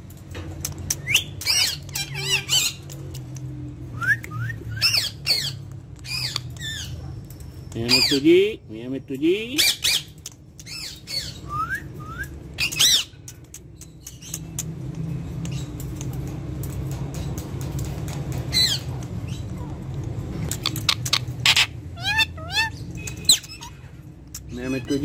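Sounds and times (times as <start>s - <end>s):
parakeet squawking and chirping: 0.9s - 3.0s, 4.8s - 7.0s, 7.6s - 8.4s, 9.6s - 11.5s, 12.6s - 14.6s, 18.5s - 19.6s, 20.3s - 25.0s.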